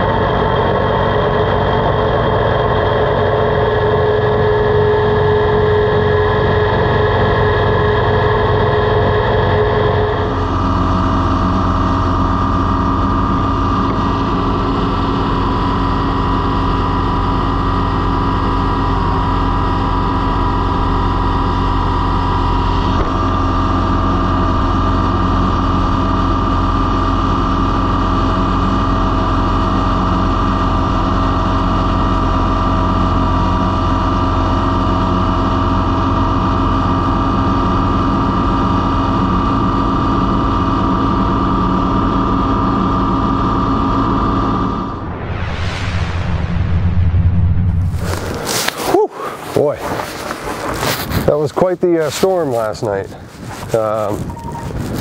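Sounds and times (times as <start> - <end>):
tractor diesel engine droning: 0.0 - 45.4, 47.6 - 55.0.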